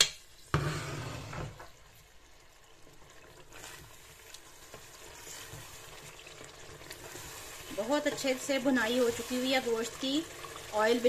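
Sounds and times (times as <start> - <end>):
meat sizzling in oil: 0.0 - 11.0.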